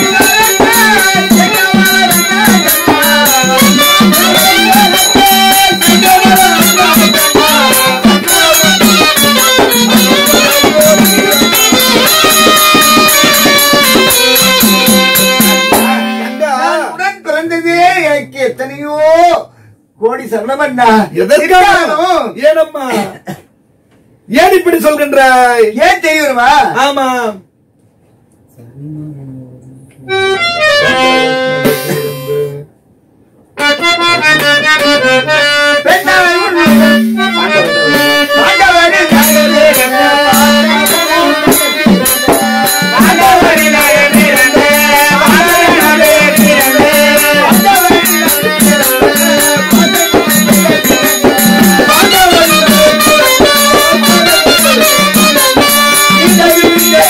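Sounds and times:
fast metallic percussion: 0.0 - 16.9, 35.8 - 57.0
reed instruments playing: 0.0 - 17.0, 30.0 - 32.7, 33.6 - 57.0.

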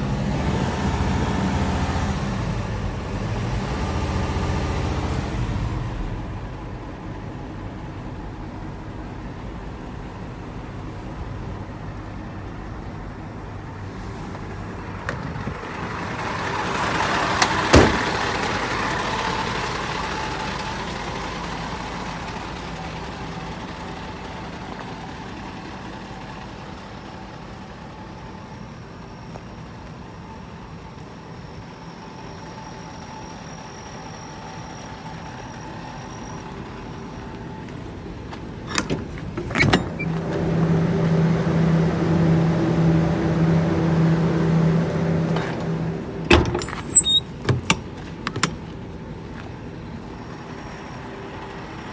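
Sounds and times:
diesel truck engine idling: 0.0 - 51.9
metal latch clanks: 38.7 - 40.0, 46.3 - 48.6.

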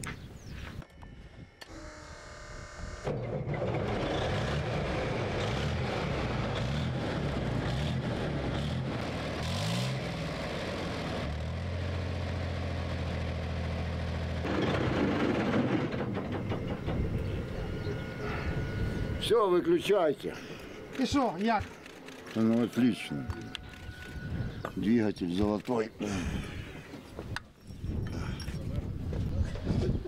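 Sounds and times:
diesel engine revving and idling: 3.5 - 15.8.

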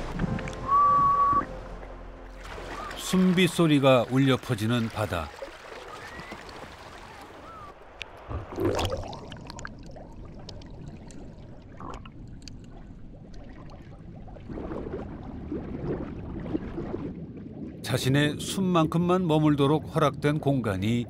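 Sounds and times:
sea water sloshing and splashing: 0.0 - 21.0
faint short whistle: 0.6 - 1.6.

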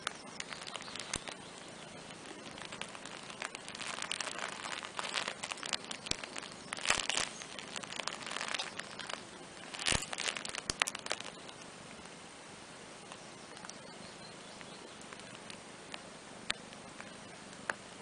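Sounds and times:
fabric playmat rustling and crinkling: 0.0 - 11.6
sharp little clicks: 0.0 - 12.2.

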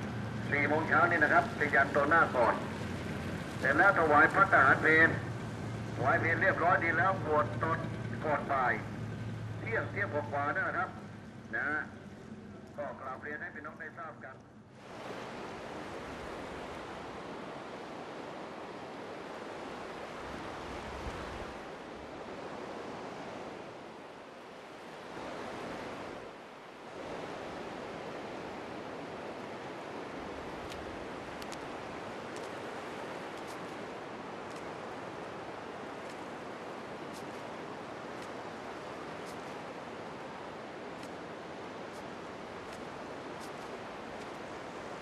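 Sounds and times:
sea surf washing on beach: 0.0 - 13.7, 14.7 - 45.0
wind: 0.0 - 45.0
faint high ticks: 30.6 - 31.7, 32.3 - 32.6.

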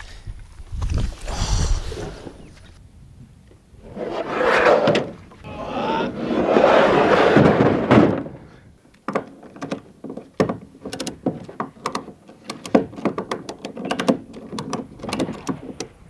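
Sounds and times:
knocks of ratchet gear: 10.9 - 15.9.

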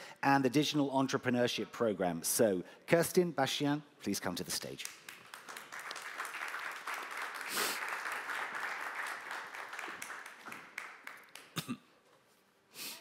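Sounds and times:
audience applauding: 5.0 - 11.7.

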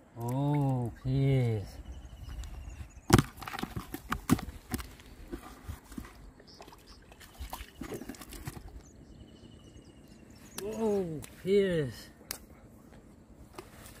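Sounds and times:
fish flapping in plastic bucket: 7.7 - 8.7.

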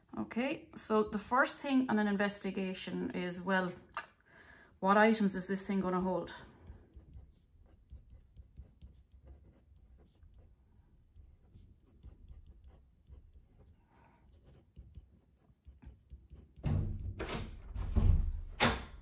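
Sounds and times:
felt-tip pen scratching on paper: 5.6 - 16.6.

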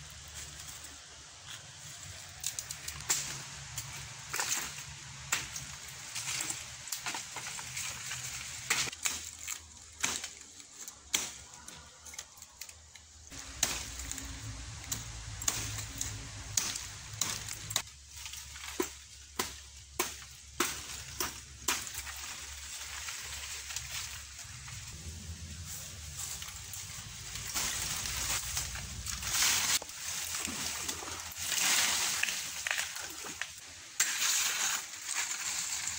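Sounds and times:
dry leaves rustling: 0.0 - 35.9
machete chopping stems: 11.1 - 11.5, 13.3 - 17.9, 18.6 - 22.2.

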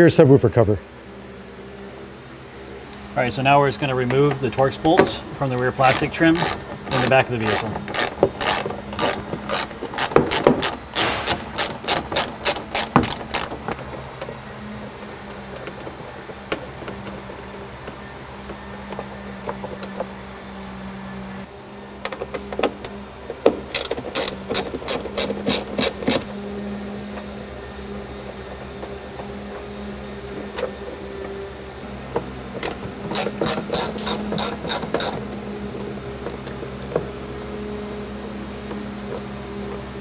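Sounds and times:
hand ratchet clicking: 5.8 - 13.6.

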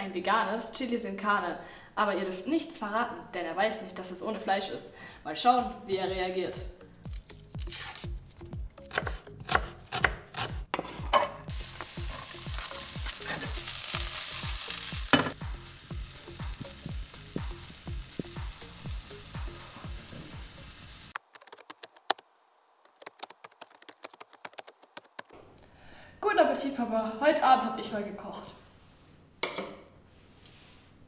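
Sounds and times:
knife cutting onion: 7.1 - 13.8
food sizzling in pot: 10.8 - 21.2
low thudding beat: 15.0 - 20.6.

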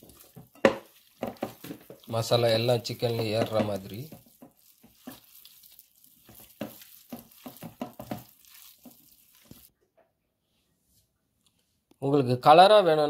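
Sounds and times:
hands squishing raw chicken: 0.0 - 9.7.

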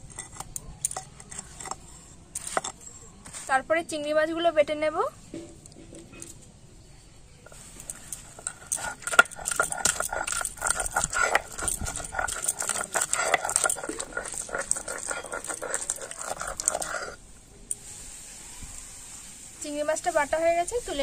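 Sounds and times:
stone grinding on stone: 0.0 - 3.6, 7.4 - 17.2.

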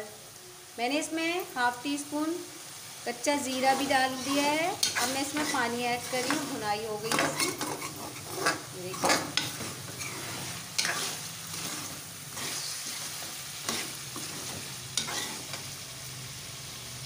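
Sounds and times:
meat sizzling in oil: 0.0 - 17.0
metal spoon scraping a pot: 3.5 - 15.6.

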